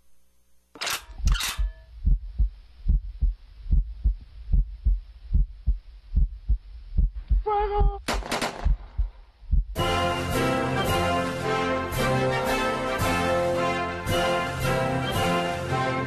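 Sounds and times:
heartbeat thumps: 0:01.6 - 0:09.8.

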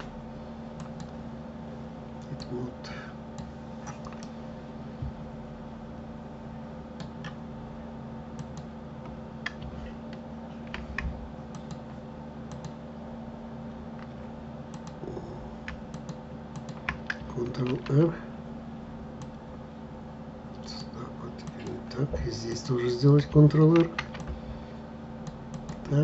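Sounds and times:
steady low hum: 0:00.0 - 0:26.0
keyboard and mouse clicks: 0:00.8 - 0:01.2, 0:07.0 - 0:07.4, 0:08.4 - 0:11.9, 0:12.5 - 0:12.8, 0:14.0 - 0:15.0, 0:15.6 - 0:18.0, 0:23.6 - 0:24.4, 0:25.2 - 0:25.9.

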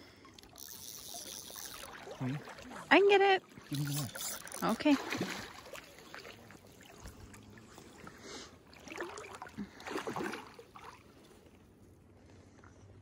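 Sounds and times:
fish thrashing and splashing: 0:03.4 - 0:07.3.

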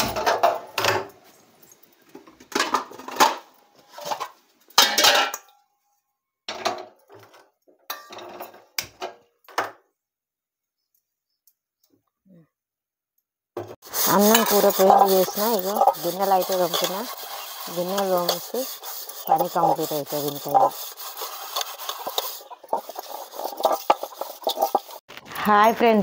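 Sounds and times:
metal pots and pans clattering: 0:00.0 - 0:01.3, 0:02.2 - 0:05.5, 0:06.5 - 0:09.7, 0:13.6 - 0:25.0.

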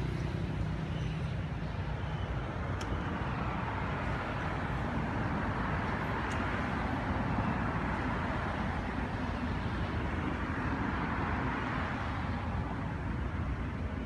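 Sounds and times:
outdoor background rumble and hiss: 0:00.0 - 0:14.0.

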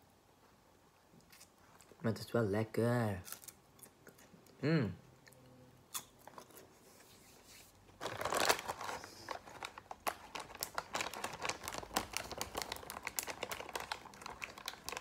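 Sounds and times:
foil snack bag crinkling: 0:08.0 - 0:15.0.

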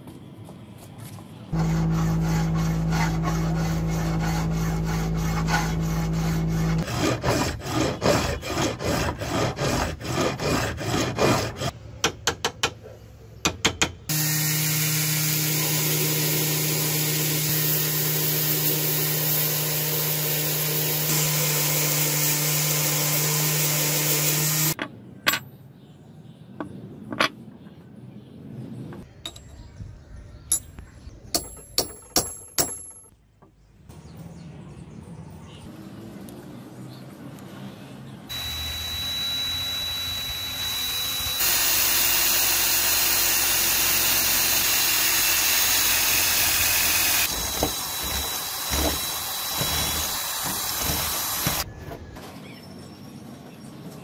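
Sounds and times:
belt grinder motor hum: 0:01.6 - 0:07.0, 0:38.3 - 0:51.7
rhythmic scraping strokes: 0:01.6 - 0:11.7.

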